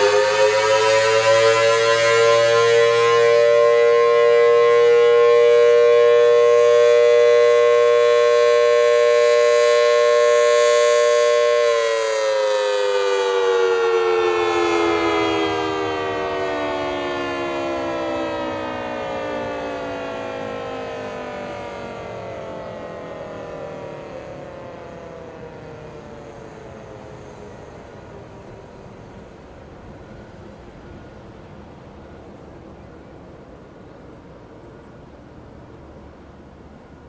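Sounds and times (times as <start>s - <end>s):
rotating horn siren two-note chord: 0.0s - 24.2s.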